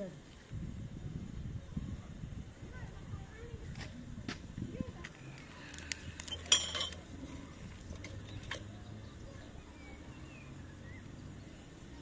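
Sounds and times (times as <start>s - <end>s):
wood fire crackling: 4.4s - 7.2s.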